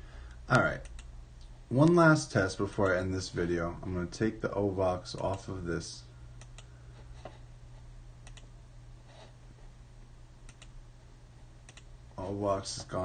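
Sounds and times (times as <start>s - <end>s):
low steady hum: 0.0s - 13.0s
computer mouse clicks: 6.4s - 6.7s, 8.2s - 8.5s, 10.5s - 10.8s, 11.6s - 11.9s.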